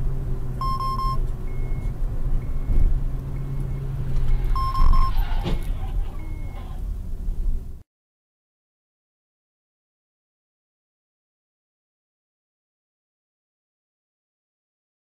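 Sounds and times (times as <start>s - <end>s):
car engine and road hum: 0.0s - 7.8s
loud electronic beep: 0.6s - 1.9s, 3.4s - 6.8s
short high beeps: 0.6s - 2.8s, 3.4s - 6.8s.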